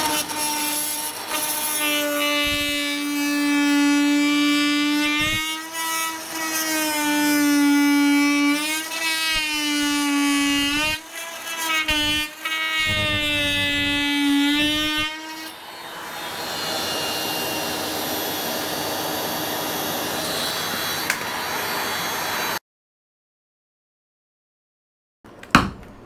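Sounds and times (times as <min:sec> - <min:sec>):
multi-tool buzzing into wood: 0:00.0 - 0:22.6.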